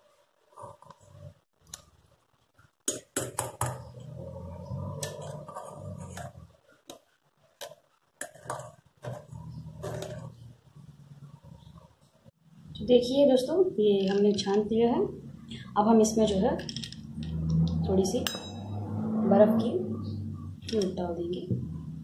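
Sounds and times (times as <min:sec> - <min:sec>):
clinks of steel kitchenware: 0:18.2 - 0:18.8.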